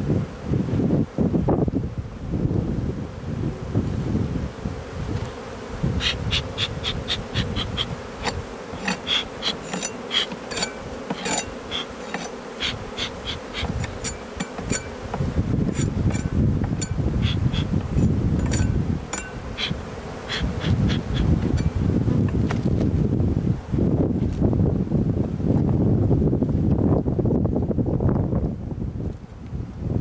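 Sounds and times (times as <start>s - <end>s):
bees humming: 0.0s - 23.9s
smoker bellows puffing: 6.2s - 19.9s.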